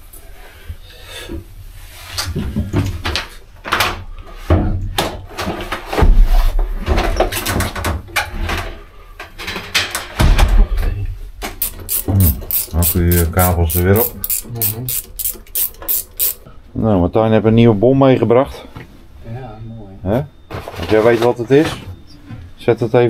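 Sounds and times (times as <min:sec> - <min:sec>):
knocks and clunks of handling equipment: 0:02.2 - 0:13.8.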